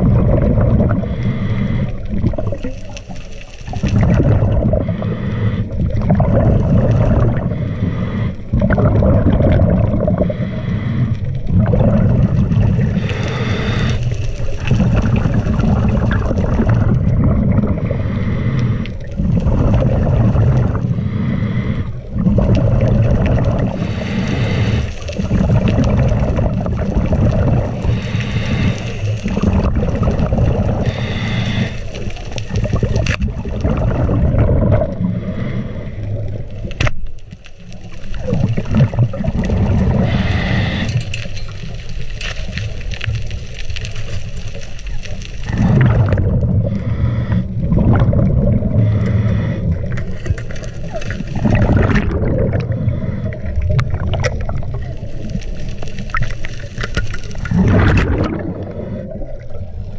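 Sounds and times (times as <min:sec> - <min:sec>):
exhaled air bubbling: 0:00.0 - 0:59.9
regulator hissing inhale: 0:01.0 - 0:02.1, 0:04.8 - 0:06.0, 0:07.4 - 0:08.5, 0:10.2 - 0:11.4, 0:12.8 - 0:14.5, 0:17.8 - 0:19.2, 0:20.7 - 0:22.2, 0:23.6 - 0:25.4, 0:27.7 - 0:29.4, 0:30.7 - 0:32.6, 0:35.0 - 0:36.6, 0:39.9 - 0:41.6, 0:46.6 - 0:47.7, 0:48.5 - 0:51.4, 0:52.6 - 0:53.8.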